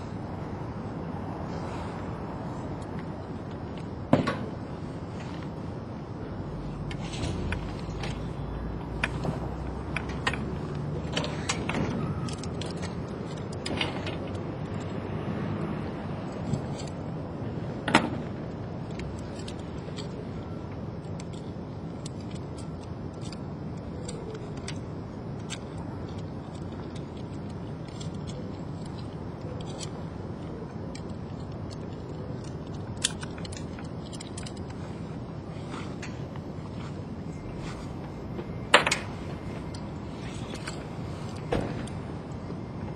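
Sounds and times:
steady low rumble: 0.0s - 42.9s
metal hardware clicking and clinking: 6.8s - 15.1s, 17.8s - 42.5s.

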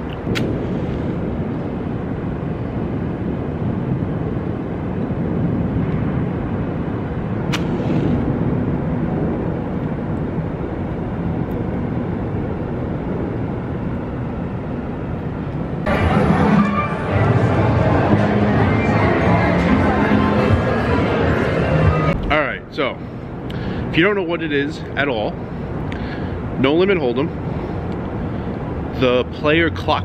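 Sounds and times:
low rumbling background noise: 0.0s - 30.0s
match strike: 7.5s - 8.2s.

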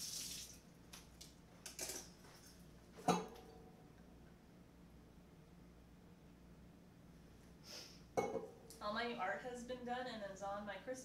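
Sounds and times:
tap water running: 0.0s - 0.6s.

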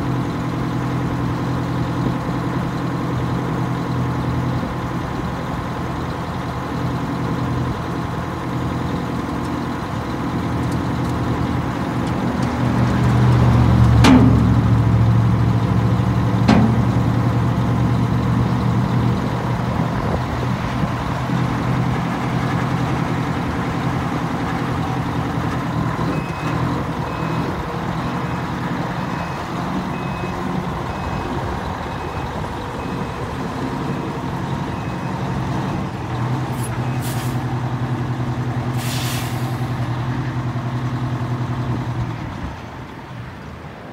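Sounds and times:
diesel truck engine running: 0.0s - 43.9s
sharp air releases: 38.8s - 39.7s.

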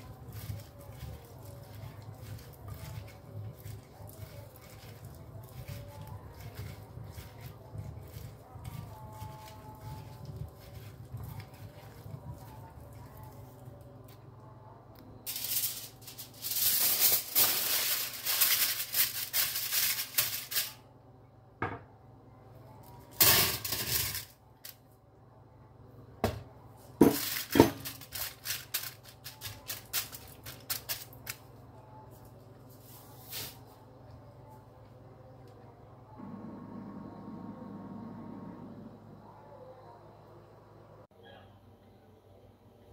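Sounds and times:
foil crinkling: 0.0s - 13.0s, 15.3s - 20.8s, 27.0s - 31.4s.

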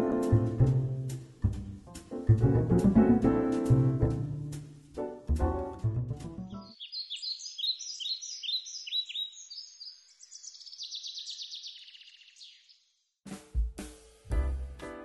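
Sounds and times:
songbird singing: 6.4s - 12.9s.

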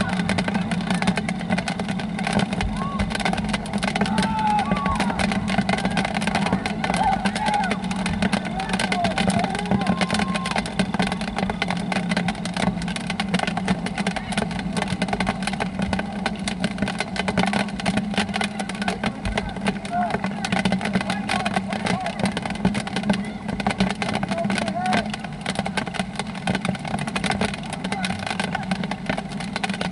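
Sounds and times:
crackling microphone noise: 0.0s - 29.9s
distant shouts: 2.7s - 3.2s, 4.0s - 11.2s.

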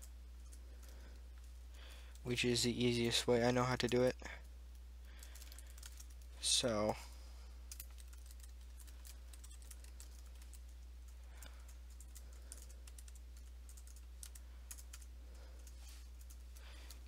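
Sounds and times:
steady low hum: 0.0s - 17.0s
keyboard typing clicks: 7.7s - 10.7s, 11.4s - 17.0s.

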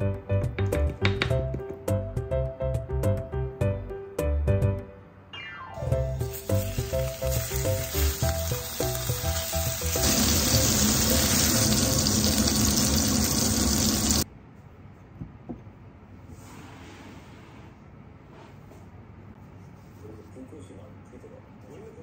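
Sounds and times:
background music: 0.0s - 14.2s
pork sizzling in a frying pan: 6.1s - 14.2s.

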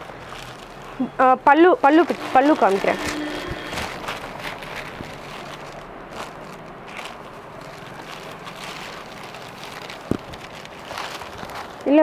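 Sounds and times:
fabric rustling: 0.0s - 12.0s.

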